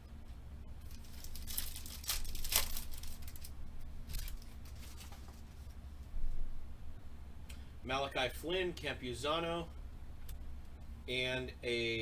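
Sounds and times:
cards and wrapper rustling: 0.8 - 3.5, 4.1 - 5.5
wrapper tearing with crinkling rip: 0.8 - 3.5, 4.1 - 5.2.

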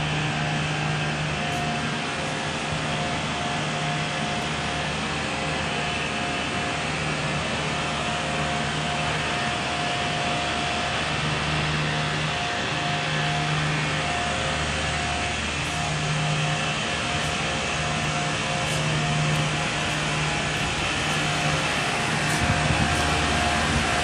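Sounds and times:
hvac unit droning: 0.0 - 24.0.

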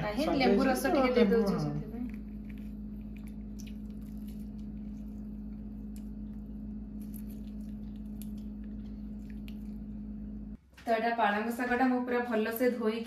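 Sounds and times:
steady hum: 0.0 - 10.7.

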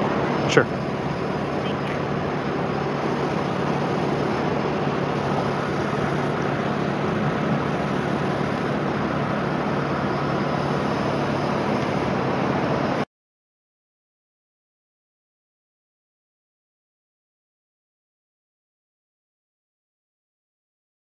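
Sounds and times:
road traffic rushing: 0.0 - 13.0
wind: 0.0 - 13.1.

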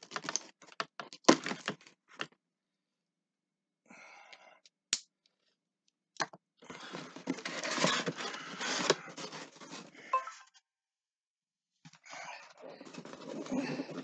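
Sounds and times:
packaging crinkling and tearing: 0.0 - 1.9
packaging rustling: 6.7 - 9.9.

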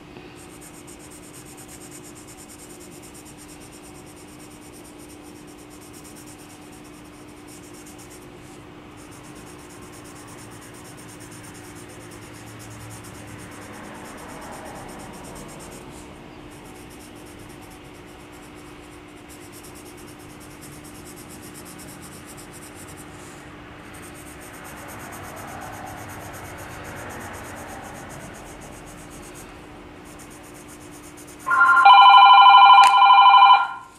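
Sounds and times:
steady low hum: 0.0 - 33.9
pencil scratching on paper: 0.4 - 31.8
telephone ringing: 31.5 - 33.9.

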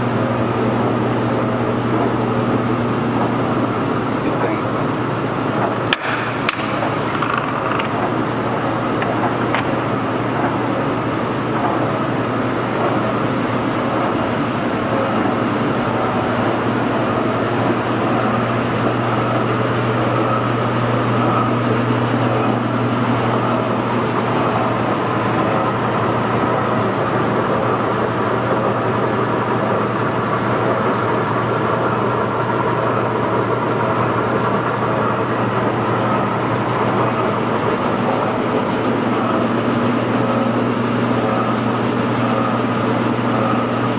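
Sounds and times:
lathe motor humming: 0.0 - 43.9.

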